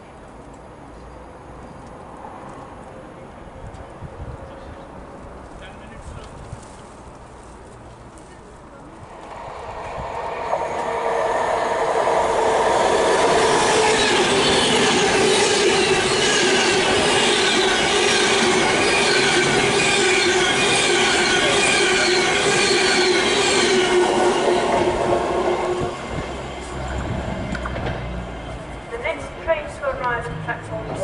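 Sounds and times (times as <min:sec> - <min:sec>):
train wheels rushing on rail: 0:08.8 - 0:31.0
wheels squealing on curve: 0:09.2 - 0:25.8.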